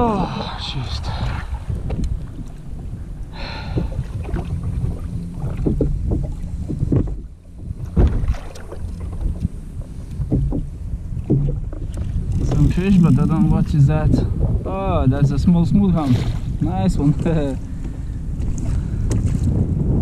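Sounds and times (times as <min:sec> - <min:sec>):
wind buffeting microphone: 0:00.0 - 0:20.0
gear knocking against kayak: 0:03.3 - 0:14.6.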